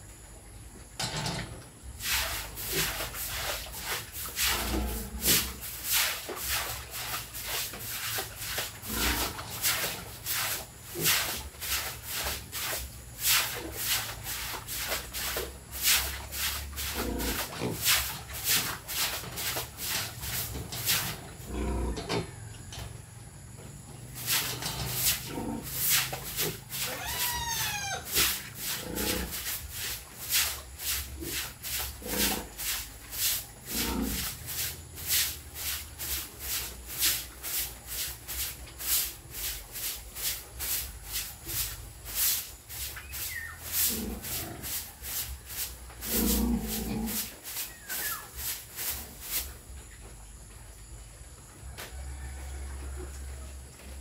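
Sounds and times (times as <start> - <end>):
scrubbing on floor: 1.9 - 21.7, 24.0 - 49.8
piglets grunting: 26.8 - 29.2.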